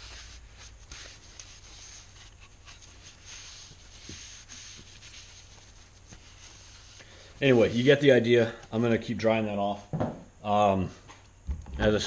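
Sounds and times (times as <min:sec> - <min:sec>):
cloth rag rubbing wood: 0:00.0 - 0:08.0.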